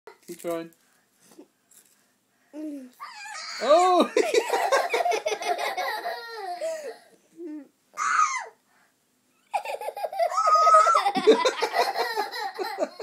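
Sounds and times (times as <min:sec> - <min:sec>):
toddler giggling and squealing: 0:04.5 - 0:08.6, 0:09.4 - 0:13.0.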